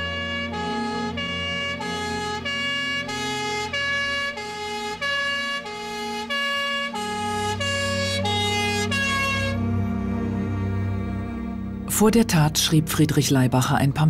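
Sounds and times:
two-tone emergency siren: 0.0s - 11.1s
low hum: 0.0s - 14.0s.

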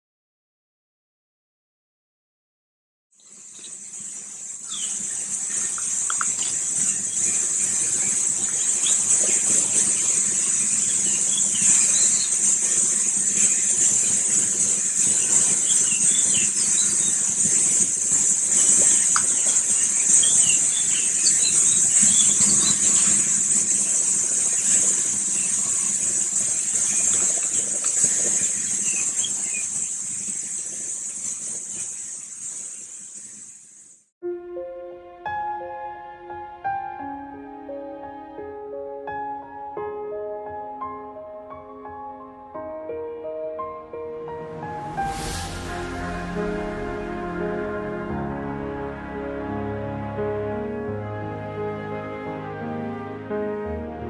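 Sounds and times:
high-pitched insect chorus: 3.2s - 34.0s, 44.6s - 48.0s.

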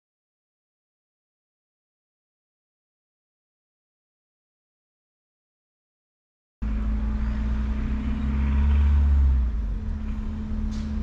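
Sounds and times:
engine humming: 6.6s - 11.0s.

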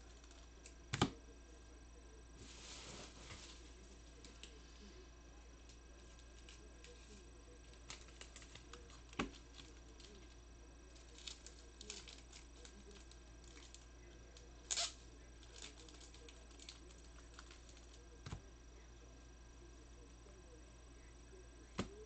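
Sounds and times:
low steady hum: 0.0s - 22.0s
cards and wrappers rustling: 6.0s - 13.9s, 14.7s - 18.0s
wrapper crinkle: 6.0s - 13.9s, 14.6s - 17.9s.

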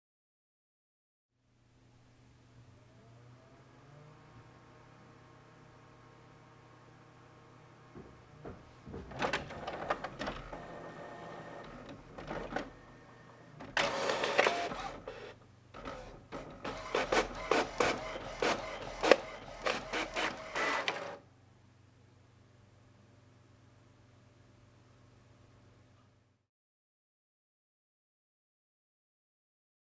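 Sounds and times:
printer rushing: 8.9s - 21.2s
printer whirring and clicking: 8.9s - 21.2s
rapid sharp printer clicks: 9.1s - 12.8s, 13.7s - 21.2s.

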